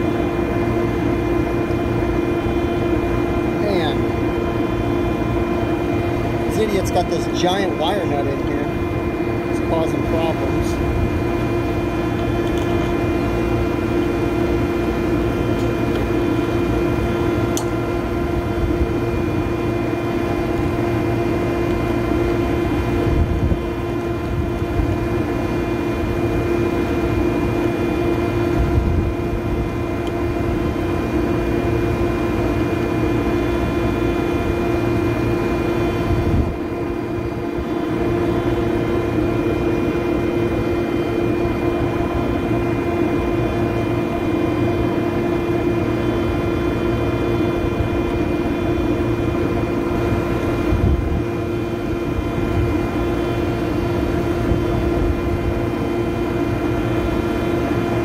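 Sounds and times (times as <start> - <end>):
rooftop machinery humming: 0.0 - 58.0.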